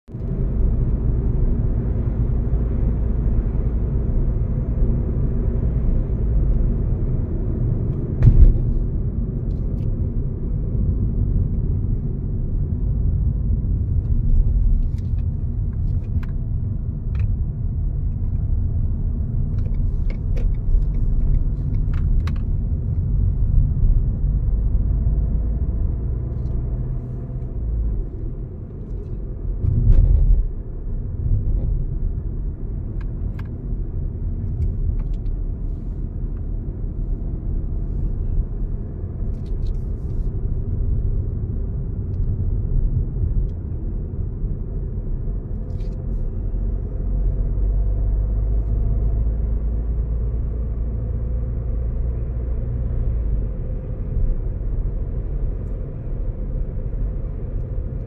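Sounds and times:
car tyres and engine rumble: 0.1 - 58.0
sharp thump: 8.2 - 8.9.

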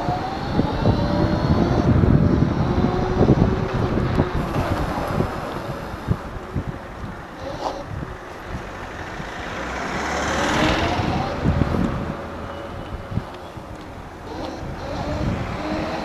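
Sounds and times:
car passing: 0.0 - 16.0
tyre and road noise: 0.0 - 16.0
wind rushing over microphone: 0.0 - 16.0.

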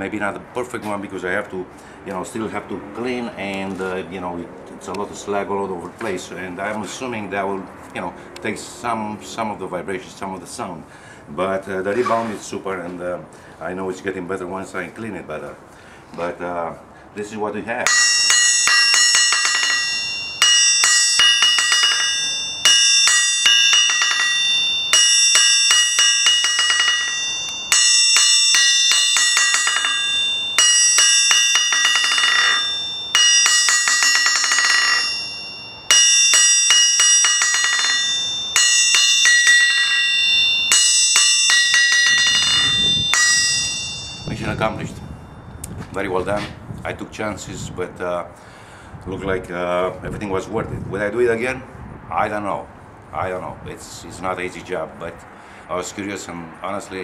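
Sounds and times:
anvil ringing: 17.8 - 45.6.

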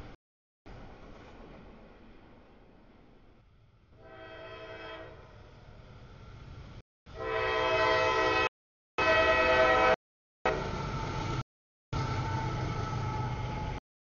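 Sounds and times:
train rumbling: 0.0 - 11.4, 12.0 - 13.8
locomotive air horn blasts: 4.0 - 5.2, 7.1 - 10.0.

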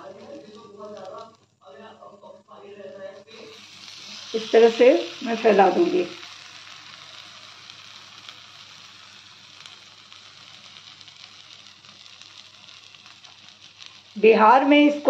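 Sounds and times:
okra frying in oil: 0.0 - 2.0, 3.1 - 15.0.

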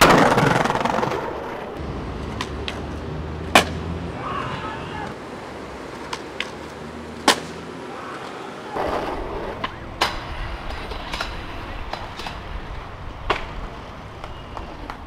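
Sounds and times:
skateboard grinding scrape: 0.0 - 3.7, 8.2 - 12.6
skateboard clacks: 0.0 - 3.8, 5.8 - 15.0
skateboard wheels rolling: 0.0 - 15.0.

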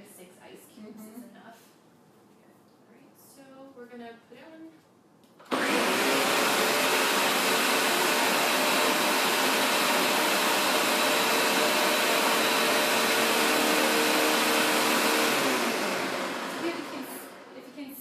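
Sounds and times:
blender motor running: 5.5 - 17.6.

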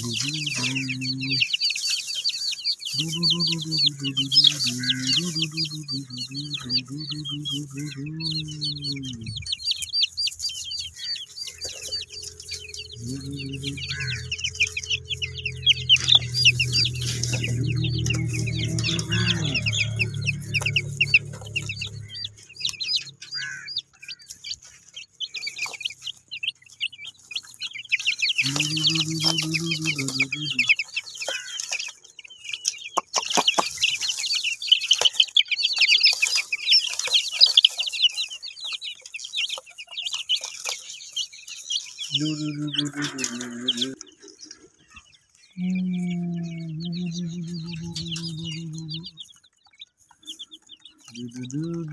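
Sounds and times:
baby chicks peeping: 0.0 - 51.9
low drawn-out pitched sound: 11.9 - 23.1.

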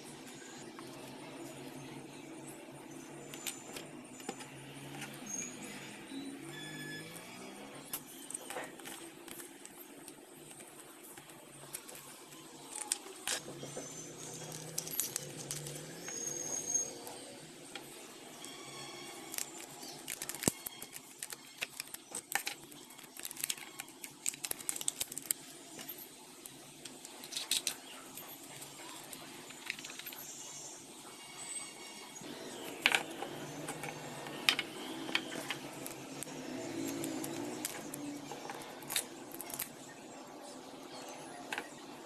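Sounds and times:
plastic parts clicking and tapping: 17.8 - 27.9, 28.5 - 30.2, 32.6 - 39.8.

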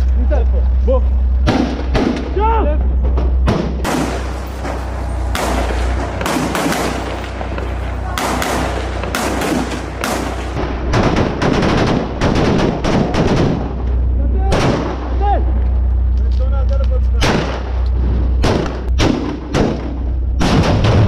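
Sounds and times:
gunfire: 3.5 - 13.9, 14.5 - 15.2, 17.2 - 17.8, 18.4 - 21.0.

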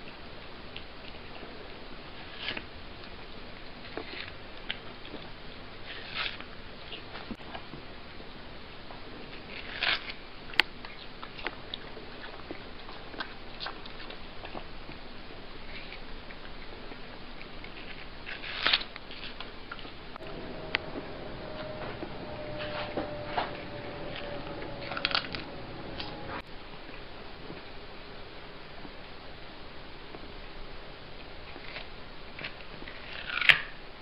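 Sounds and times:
cat chewing watermelon: 0.0 - 22.9, 30.0 - 33.8.

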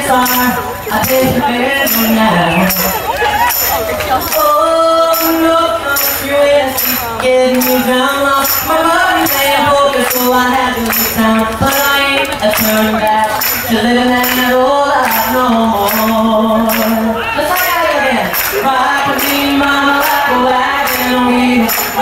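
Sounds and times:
people singing a country song: 0.0 - 3.1, 4.3 - 22.0
audience singing along: 0.8 - 6.4, 13.8 - 22.0
hand claps: 6.8 - 17.0, 17.6 - 22.0.

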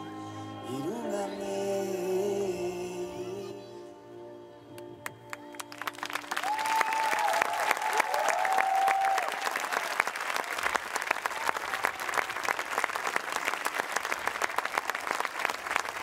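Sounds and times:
crowd applauding: 5.0 - 16.0
high cheers: 5.7 - 16.0.

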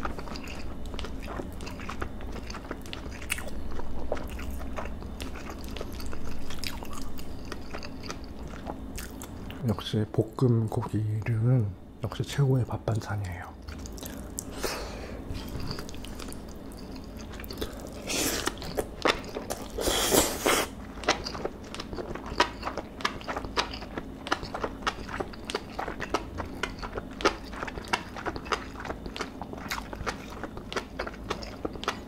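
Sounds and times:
person chewing food: 0.0 - 9.6, 13.6 - 32.0
wet chewing clicks: 0.0 - 9.6, 21.0 - 32.0.

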